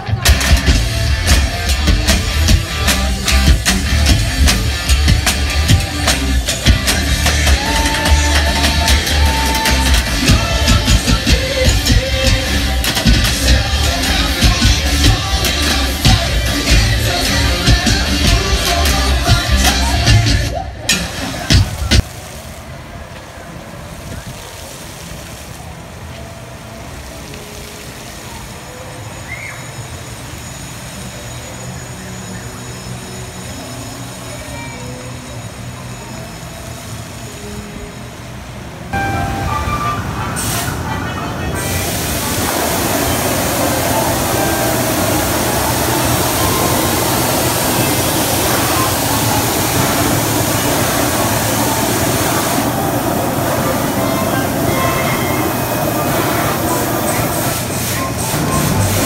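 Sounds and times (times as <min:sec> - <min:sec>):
air blowers rushing: 0:00.0 - 0:22.0, 0:39.0 - 0:59.0
short high chirp: 0:39.0 - 0:40.4.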